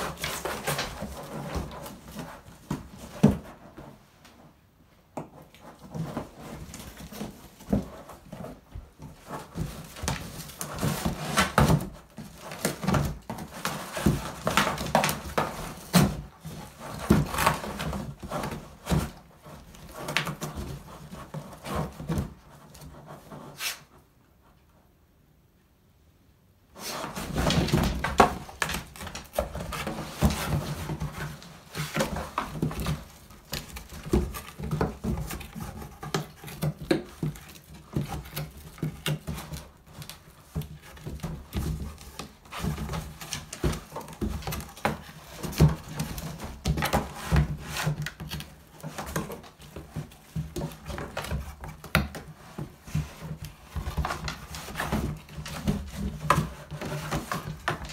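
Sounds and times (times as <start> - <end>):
dog tearing cardboard box: 0.0 - 3.6, 5.5 - 23.9, 26.8 - 57.9.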